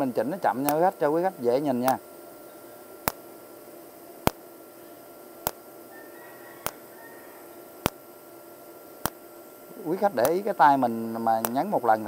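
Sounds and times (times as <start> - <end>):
welder arc cracks: 0.0 - 2.1, 2.8 - 4.7, 5.3 - 5.8, 6.6 - 6.9, 7.6 - 8.2, 8.8 - 12.0
faint steady hum: 0.0 - 12.0.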